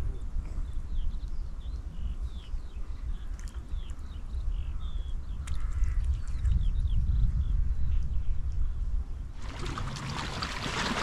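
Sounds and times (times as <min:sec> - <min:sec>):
small birds chirping: 0:00.0 - 0:08.8.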